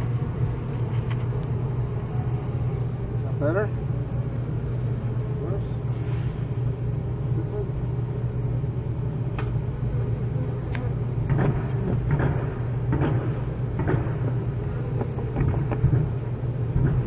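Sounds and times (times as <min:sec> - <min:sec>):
bees humming in a hive: 0:00.0 - 0:17.0
bees ticking on camera: 0:13.6 - 0:17.0.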